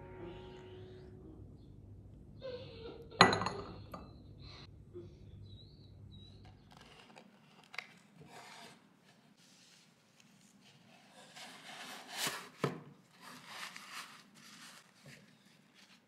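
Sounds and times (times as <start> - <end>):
cup clinking on saucer: 3.2 - 4.0
handling and rubbing sounds: 6.4 - 16.0.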